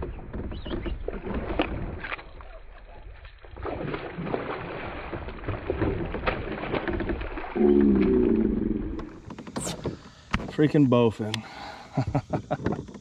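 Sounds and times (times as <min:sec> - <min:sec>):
watery wash: 0:00.0 - 0:12.1
fish splashing at surface: 0:03.5 - 0:08.8.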